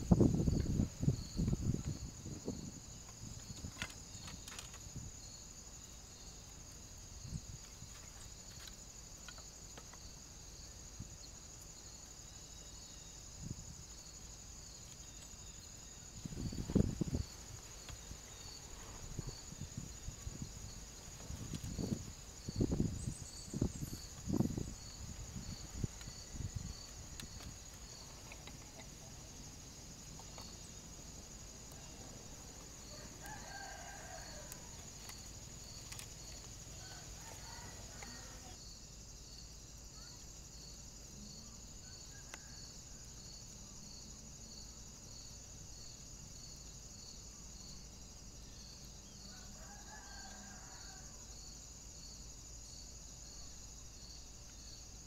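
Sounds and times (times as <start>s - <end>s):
pulsing insect drone: 0.0s - 55.0s
rooster crowing: 32.9s - 34.8s, 36.7s - 38.6s, 49.2s - 51.3s.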